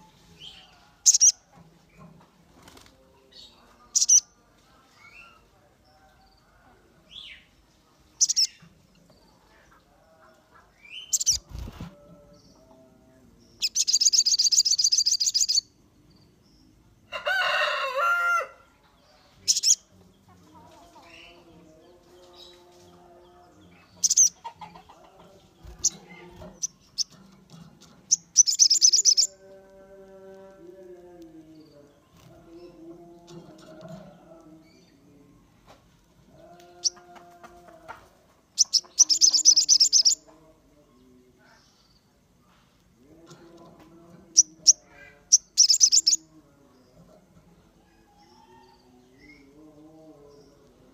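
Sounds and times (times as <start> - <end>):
bird chirping and trilling: 1.0 - 1.4, 3.9 - 4.2, 8.2 - 8.6, 10.8 - 11.7, 13.6 - 15.7, 19.4 - 19.8, 23.9 - 24.5, 28.1 - 29.4, 38.6 - 40.2, 44.4 - 46.2.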